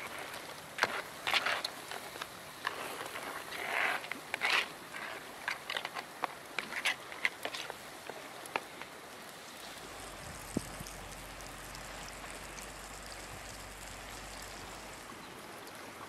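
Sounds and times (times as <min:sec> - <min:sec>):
faint sizzle: 0:07.8 - 0:16.0.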